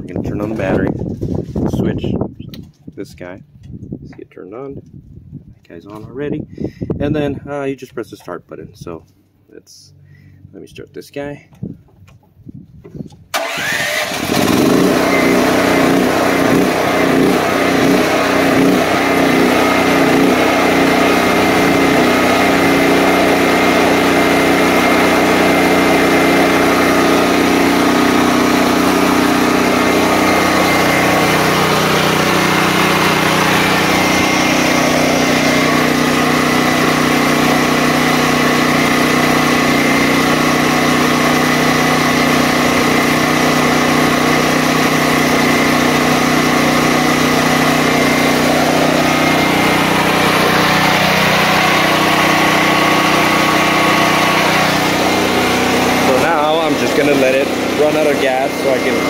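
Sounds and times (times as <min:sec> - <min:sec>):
generator engine running: 0:13.3 - 0:59.0.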